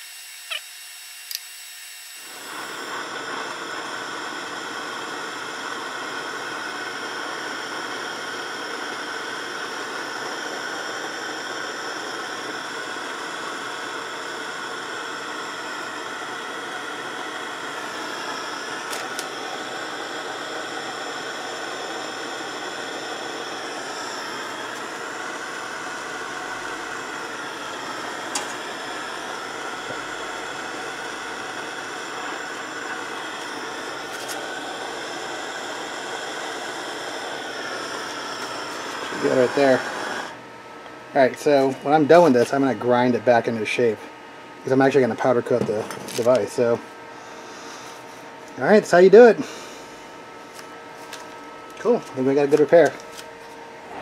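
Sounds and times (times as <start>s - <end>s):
gas torch flame hissing: 1.2s - 40.5s, 41.1s - 44.0s, 44.6s - 54.0s.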